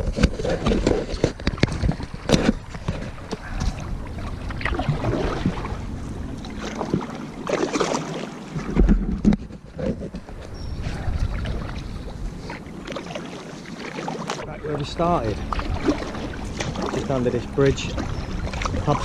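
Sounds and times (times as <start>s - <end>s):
paddle strokes in water: 0.0s - 19.0s
water splashing and dripping: 0.4s - 9.0s, 11.1s - 19.0s.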